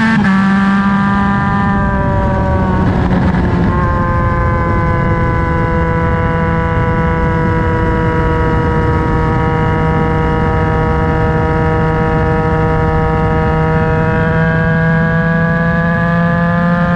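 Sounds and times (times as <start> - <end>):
motorcycle engine running: 0.0 - 16.9
wind and road noise: 0.0 - 16.9.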